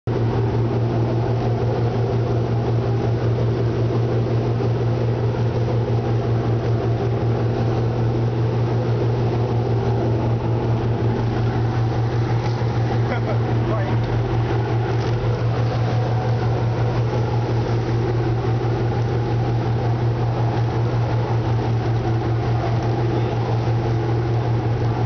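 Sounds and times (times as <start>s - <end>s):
motorboat engine drone: 0.0s - 25.0s
churning wake rushing: 0.1s - 25.0s.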